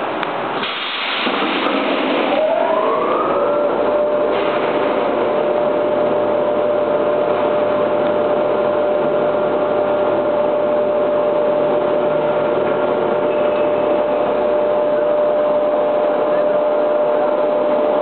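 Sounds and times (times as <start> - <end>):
factory machinery hum and whine: 0.0 - 18.0.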